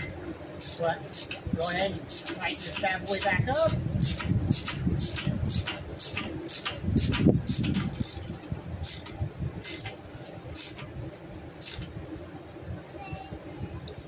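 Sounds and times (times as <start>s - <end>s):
socket ratchet clicking: 0.6s - 1.5s, 2.1s - 10.9s, 11.6s - 12.0s.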